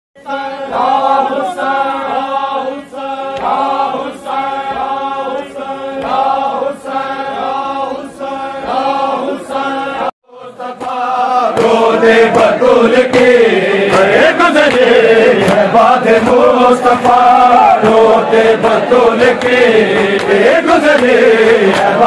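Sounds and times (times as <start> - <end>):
men chanting in unison: 0.2 - 22.0
chest-beating slaps: 3.3 - 3.8, 10.8 - 22.0.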